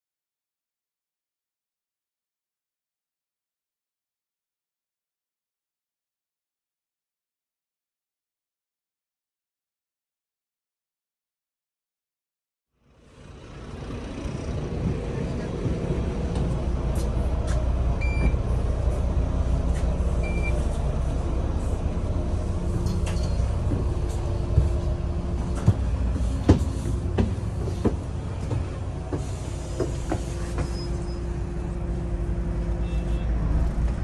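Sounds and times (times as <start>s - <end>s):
bus engine and road rumble: 12.8s - 34.0s.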